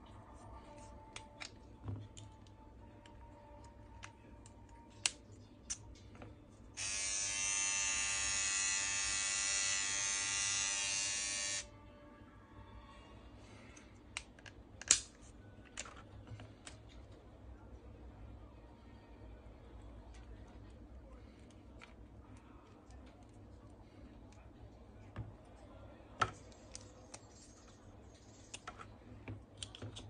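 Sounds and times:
hair trimmer motor buzzing: 6.8s - 11.6s.

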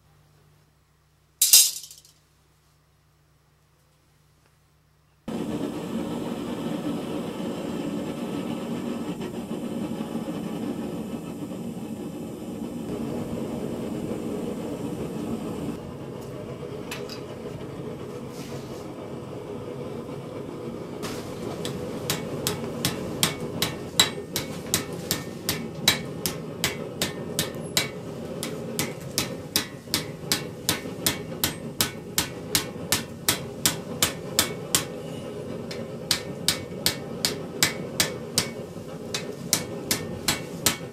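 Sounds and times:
hammer striking steel: 21.0s - 40.9s.

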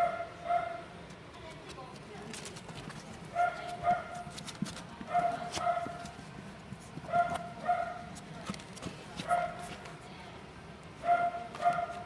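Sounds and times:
puppy yapping: 7.0s - 8.2s, 11.0s - 12.0s.

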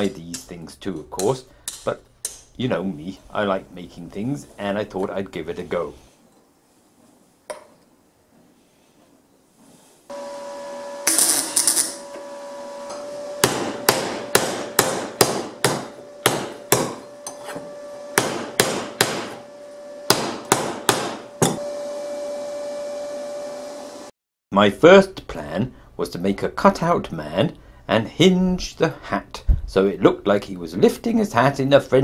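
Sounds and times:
steady hum: 10.1s - 24.1s
hammer striking steel disc: 12.9s - 21.7s.

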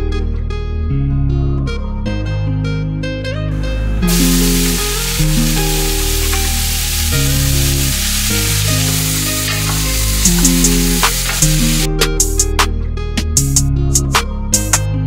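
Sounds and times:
plucked guitar music: 2.7s - 15.0s
vegetables sizzling in hot oil: 4.0s - 11.9s.

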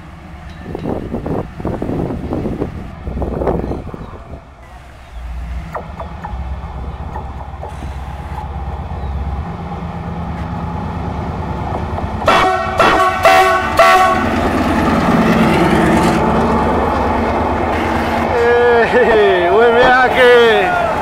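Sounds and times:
locomotive engine rumble: 0.0s - 21.0s
locomotive horn blasts: 1.6s - 2.9s, 4.6s - 5.8s, 12.2s - 15.1s
passenger coaches running by: 6.0s - 21.0s.

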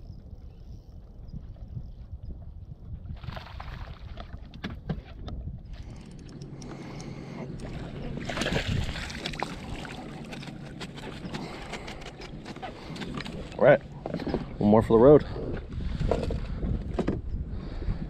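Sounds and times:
wind buffeting microphone: 0.0s - 18.0s
water lapping at boat: 3.0s - 4.9s, 5.7s - 14.6s
fish splashing into net: 8.2s - 10.0s
fishing gear clicks and knocks: 9.2s - 14.6s.

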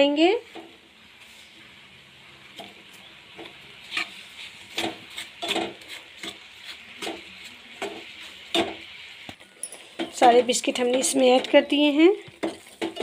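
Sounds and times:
simmering mixture hissing: 0.4s - 13.0s
metal spatula scraping a pan: 2.6s - 9.0s.

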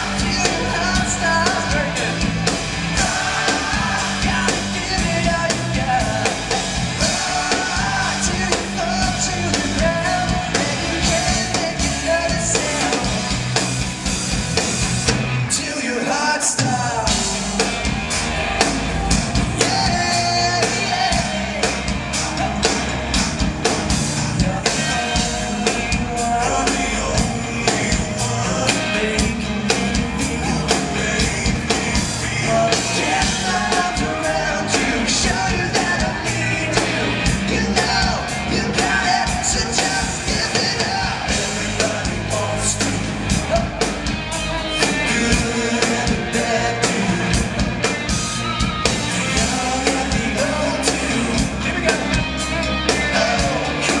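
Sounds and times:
person singing lead vocal: 0.0s - 13.8s, 15.4s - 54.0s
live rock band playing: 0.0s - 54.0s.

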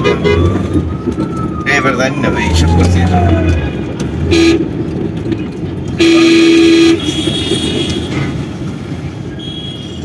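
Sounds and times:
road traffic noise inside car: 0.0s - 10.0s
car horn honking: 4.3s - 4.7s, 6.0s - 8.2s.

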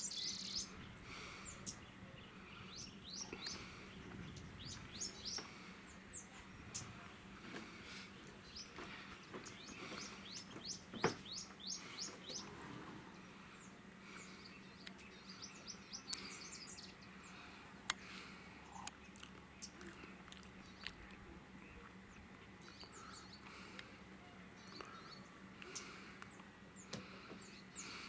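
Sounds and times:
faint outdoor background: 0.0s - 28.0s
small birds chirping: 0.0s - 28.0s.

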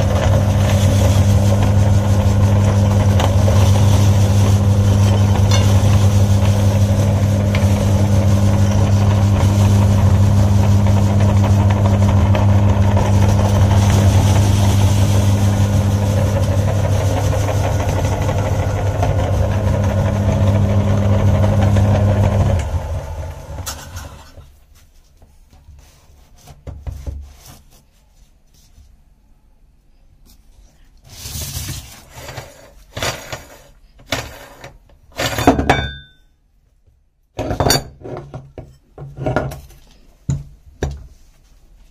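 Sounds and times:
meat grinder motor hum: 0.0s - 24.4s.

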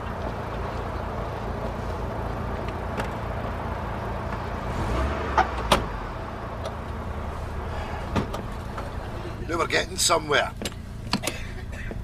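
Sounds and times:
car engine idling: 0.0s - 12.0s
car doors shutting: 5.3s - 6.0s, 7.6s - 9.4s, 10.6s - 12.0s.

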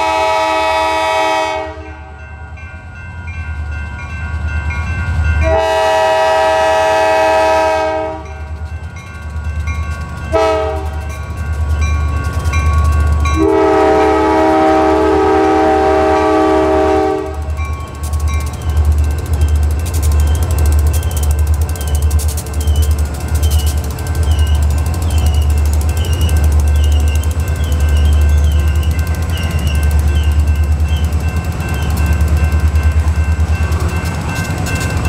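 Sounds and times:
locomotive air horn: 0.0s - 2.2s, 5.4s - 8.4s, 10.3s - 11.1s, 13.4s - 17.6s
locomotive engine rumble: 0.0s - 35.0s
crossing bell dinging: 1.2s - 35.0s
train wheels clattering: 3.7s - 35.0s.

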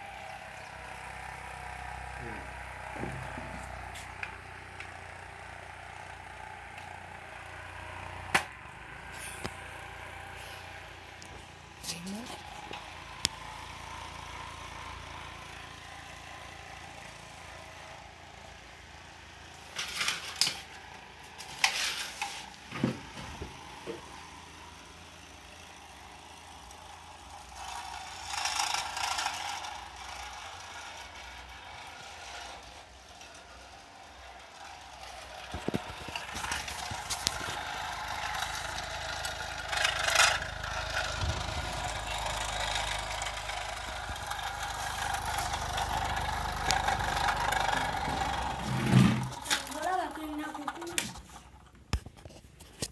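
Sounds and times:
small motor whirring: 0.0s - 52.8s.

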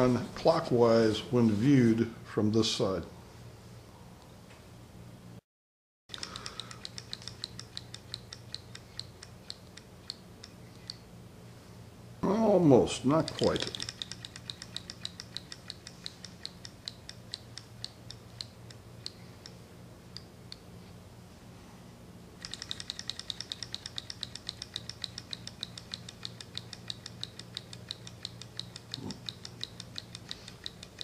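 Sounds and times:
small engine ticking: 6.1s - 11.0s, 13.1s - 20.6s, 22.4s - 31.0s.

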